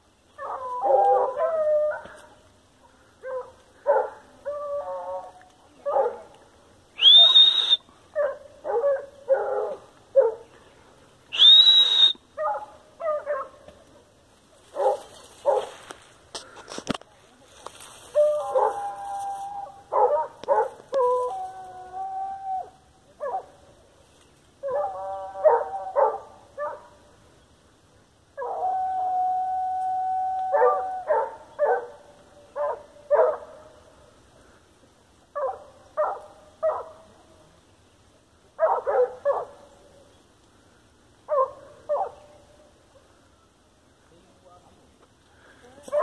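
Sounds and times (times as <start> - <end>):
dog barking and howling: 0.4 - 2.4, 3.2 - 6.2, 8.2 - 10.5, 12.4 - 13.6, 18.1 - 23.5, 24.6 - 26.9, 28.4 - 33.8, 38.6 - 39.6, 41.3 - 42.3.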